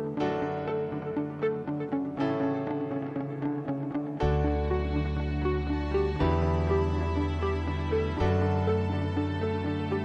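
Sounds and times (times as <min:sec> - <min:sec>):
sustained low bass notes: 0:04.2 - 0:10.0.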